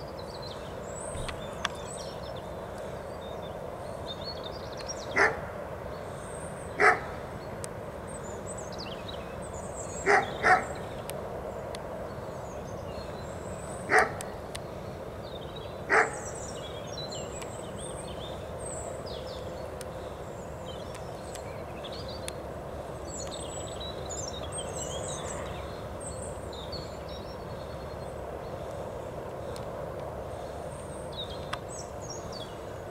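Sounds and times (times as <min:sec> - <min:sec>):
small birds chirping: 0:00.0 - 0:32.9
dog barking: 0:05.2 - 0:05.4, 0:06.8 - 0:07.1, 0:10.0 - 0:10.8, 0:13.9 - 0:14.2, 0:15.9 - 0:16.2.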